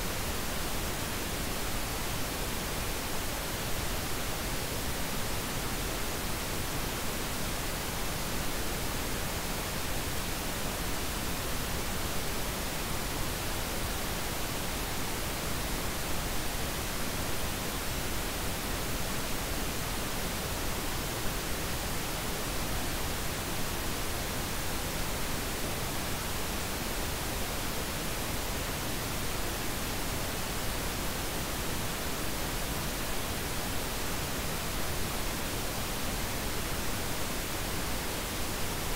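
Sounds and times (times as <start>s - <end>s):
pink noise hiss: 0.0s - 38.9s.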